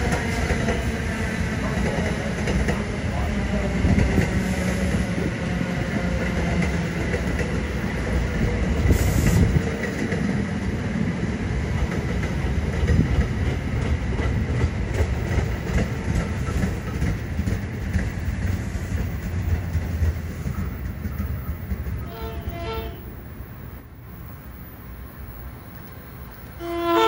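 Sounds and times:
train rumbling past: 0.0 - 27.0
short hiss: 8.9 - 9.6
wheels clicking over rails: 11.7 - 22.6.

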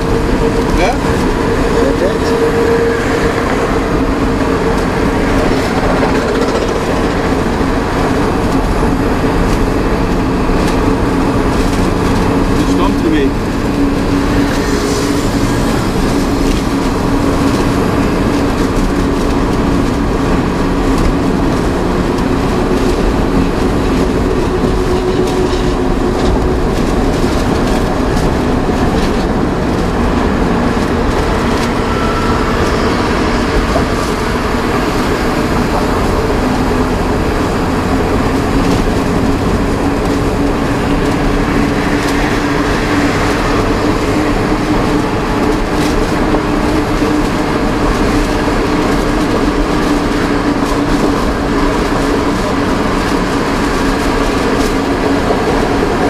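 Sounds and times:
diesel engine running: 0.0 - 56.0
tyre and road noise: 0.0 - 56.0.

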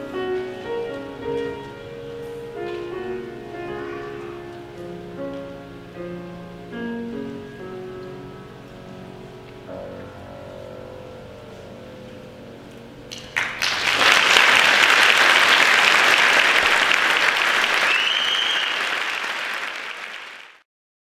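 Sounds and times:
piano chord ringing: 0.0 - 13.8
audience applause: 13.1 - 20.6
rising whistle: 17.6 - 19.0.

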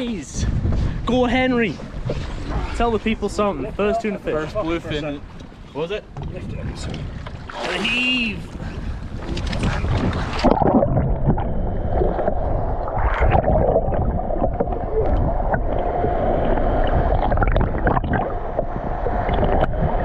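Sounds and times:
underwater sloshing and rumbling: 0.5 - 20.0
water splashing: 6.9 - 8.6, 9.2 - 20.0.

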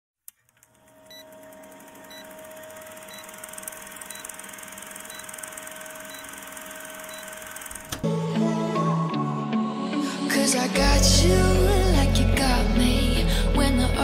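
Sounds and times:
film projector rattle: 1.3 - 8.0
short high beeps: 3.1 - 3.4, 4.1 - 4.4, 5.1 - 7.5.

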